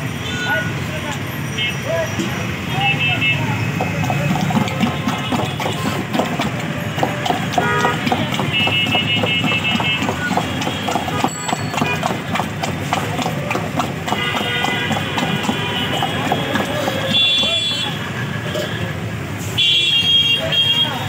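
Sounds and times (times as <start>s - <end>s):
stick knocking and scraping metal pot: 3.7s - 18.0s.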